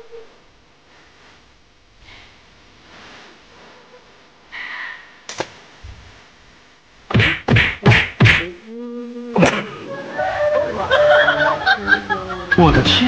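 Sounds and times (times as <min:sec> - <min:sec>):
slipper slapping a plush toy: 0:07.1 - 0:08.5.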